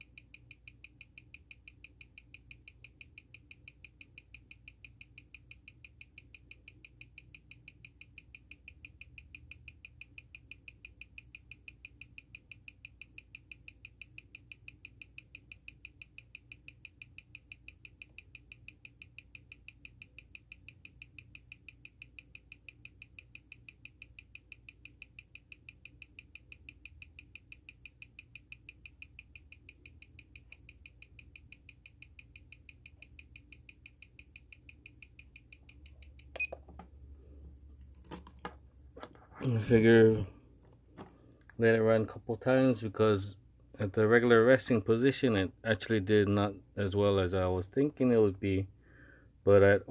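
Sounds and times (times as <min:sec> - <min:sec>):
watch ticking: 0:00.0 - 0:37.9.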